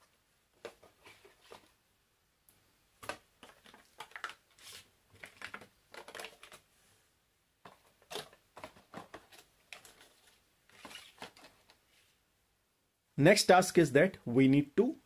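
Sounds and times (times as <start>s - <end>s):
plastic packaging crinkling: 3.0s - 6.6s, 7.8s - 11.6s.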